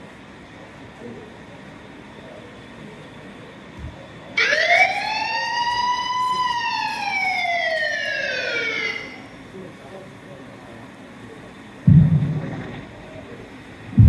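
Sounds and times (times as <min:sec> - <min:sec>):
siren wail: 0:04.4 - 0:09.2.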